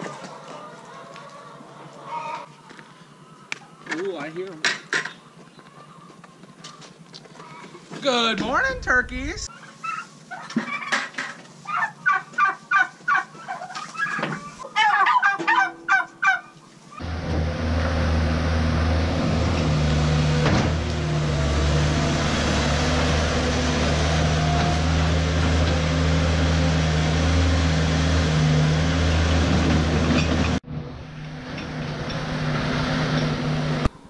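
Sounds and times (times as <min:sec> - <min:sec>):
turkeys gobbling: 0:00.0 - 0:04.0, 0:05.3 - 0:07.8, 0:09.5 - 0:17.0
skid steer engine running: 0:17.0 - 0:34.0.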